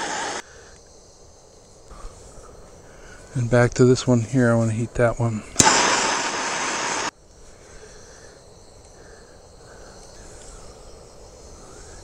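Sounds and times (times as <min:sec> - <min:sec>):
gas torch hissing: 0:00.0 - 0:00.9, 0:05.5 - 0:07.1
insects chirping: 0:00.0 - 0:12.0.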